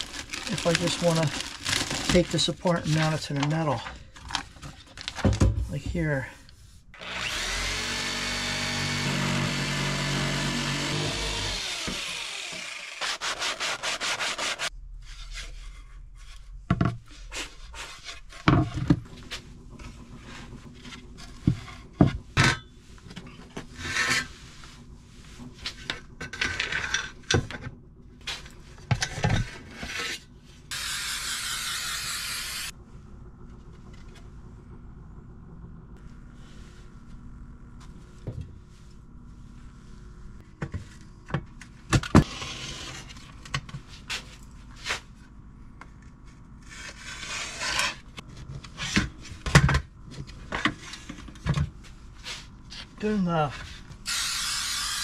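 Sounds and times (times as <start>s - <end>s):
power drill running: 7.0s - 13.3s, 30.7s - 32.7s, 54.1s - 55.0s.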